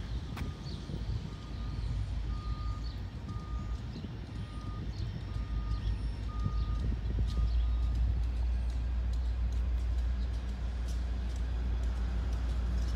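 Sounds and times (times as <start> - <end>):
crossing warning bell beeping: 1.3 - 3.8.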